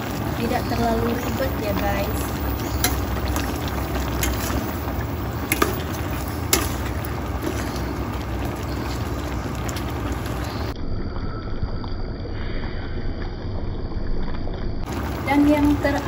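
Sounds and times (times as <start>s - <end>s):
spatula stirring in sauce: 0.0s - 10.8s
steady low rumble: 0.0s - 16.0s
spatula clinking against pot: 2.6s - 4.7s.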